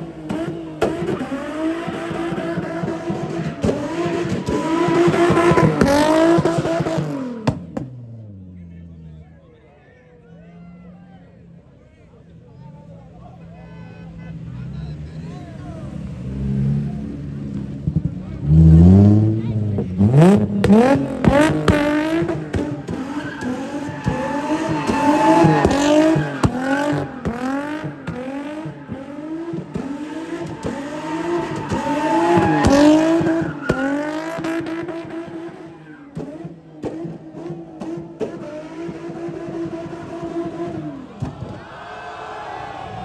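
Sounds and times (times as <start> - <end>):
car engine revving hard: 0.0 - 8.2, 16.1 - 41.0.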